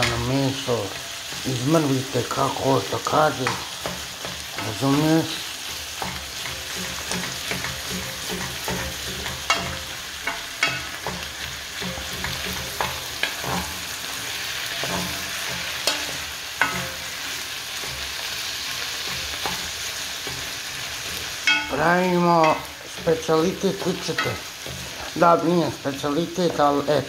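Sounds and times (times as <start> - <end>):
meat and onion sizzling: 0.0 - 27.0
wooden spoon stirring: 3.1 - 25.2
spoon knocking against pot: 21.4 - 22.7.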